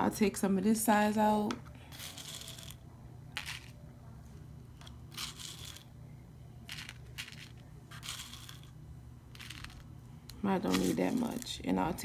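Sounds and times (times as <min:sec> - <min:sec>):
faint low hum: 0:00.0 - 0:12.0
tiny crystals rattling in plastic box: 0:01.9 - 0:02.8, 0:03.4 - 0:03.8, 0:05.1 - 0:05.9, 0:06.7 - 0:09.9, 0:10.7 - 0:11.6.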